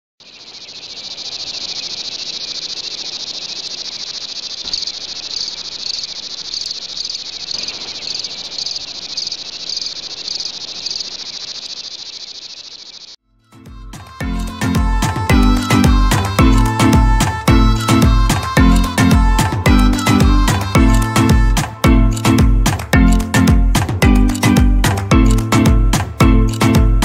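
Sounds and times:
crickets chirping: 0.2 - 13.2.

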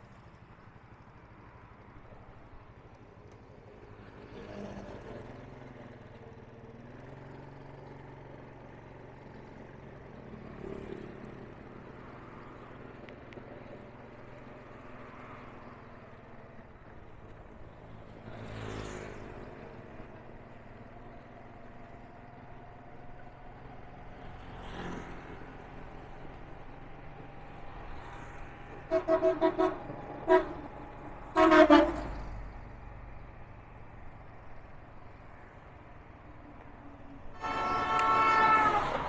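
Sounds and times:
engine hum with road noise: 0.0 - 39.0
vehicles passing: 0.0 - 39.0.

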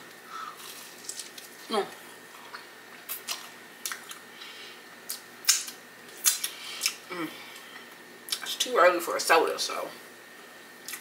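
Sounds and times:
waffle crunching: 0.4 - 1.7.

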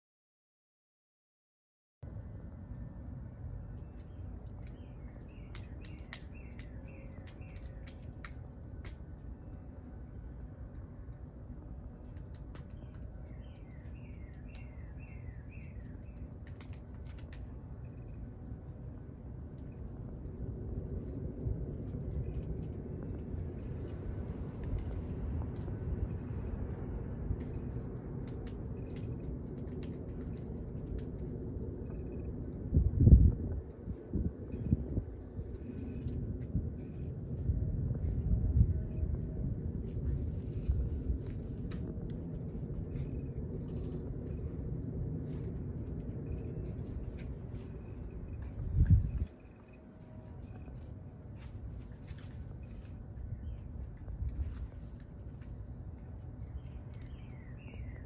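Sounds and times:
rustling branches and twig clicks: 3.4 - 58.0
wind buffeting microphone: 17.9 - 58.0.

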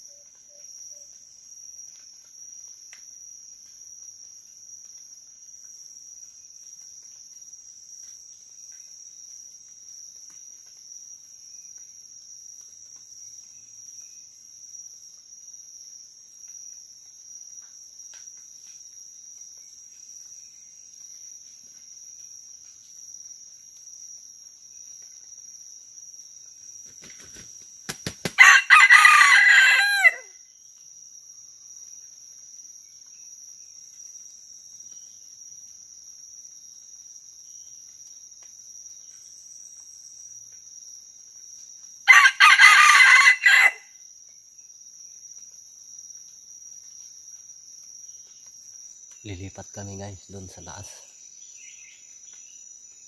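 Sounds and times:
high insect drone: 0.0 - 53.0
rooster crowing: 28.4 - 30.3, 42.1 - 43.9.

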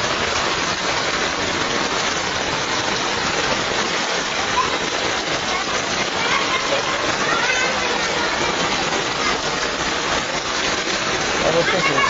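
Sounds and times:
heavy rain on water: 0.0 - 12.0.

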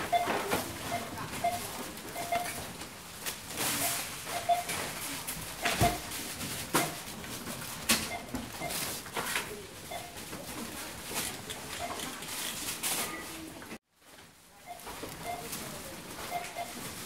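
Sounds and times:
faint scanner beeps: 0.0 - 2.6, 3.8 - 4.8, 8.1 - 8.8, 9.8 - 10.2, 14.6 - 16.8
busy store background: 0.0 - 17.0.

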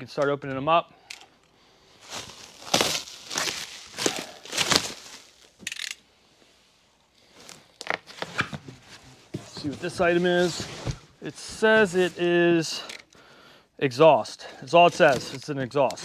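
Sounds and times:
cardboard boxes crackling: 2.0 - 5.6, 7.3 - 12.2, 14.8 - 16.0
plastic stretch wrap crinkling: 2.0 - 5.6.

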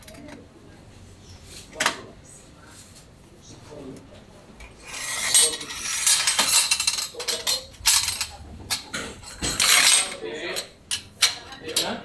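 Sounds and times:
metal scraping: 4.6 - 10.2
metallic clinks and rattles: 5.0 - 10.2.

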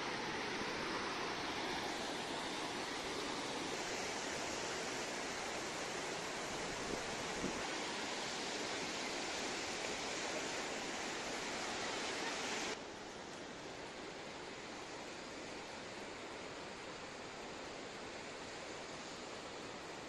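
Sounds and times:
water rushing over rocks: 0.0 - 12.8.

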